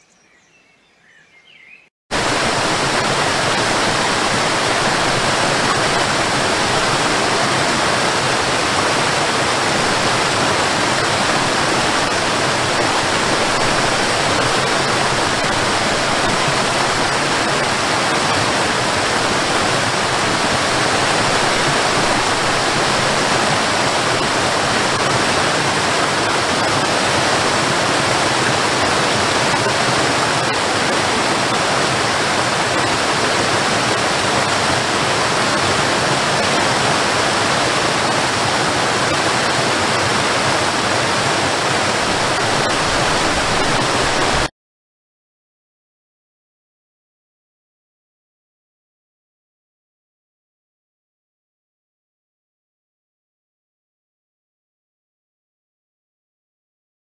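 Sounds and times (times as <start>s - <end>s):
waterfall rushing: 2.1s - 44.5s.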